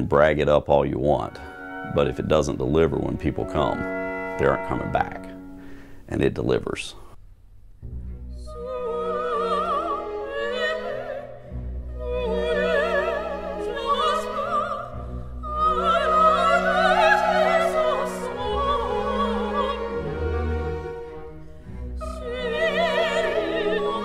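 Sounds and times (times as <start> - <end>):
orchestra playing: 0.2 - 6.7
operatic voice singing: 22.0 - 24.0.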